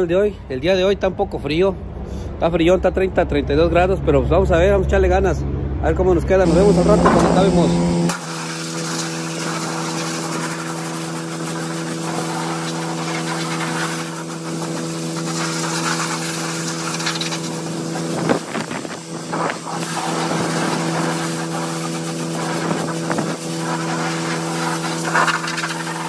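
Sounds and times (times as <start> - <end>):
engine hum: 5.1 - 10.6
pressure washer water jet hissing: 6.4 - 26.0.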